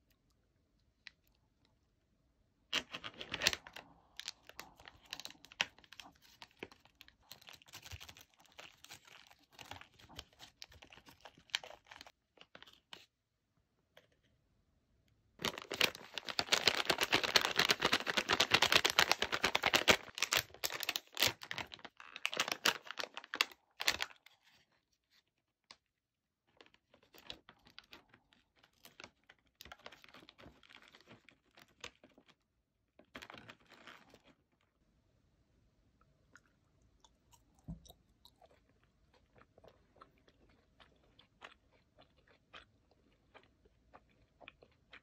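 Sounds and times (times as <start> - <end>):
snack packaging crinkling: 2.7 - 13.1, 15.4 - 25.2, 26.5 - 32.4, 33.0 - 34.5.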